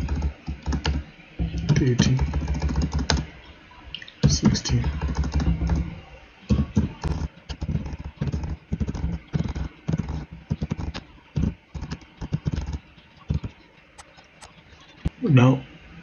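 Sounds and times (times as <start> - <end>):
keyboard typing: 0.0 - 3.3, 4.8 - 5.9, 6.5 - 14.6.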